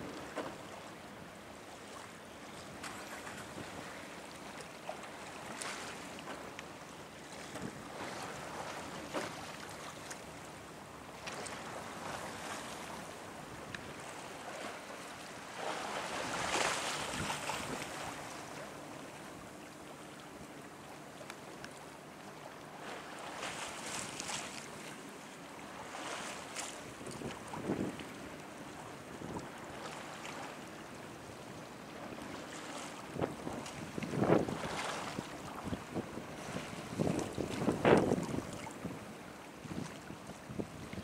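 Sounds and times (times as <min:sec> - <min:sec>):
waves washing against shore: 0:11.2 - 0:18.9, 0:32.0 - 0:41.0
wind gusting over microphone: 0:33.2 - 0:35.0, 0:35.7 - 0:39.0.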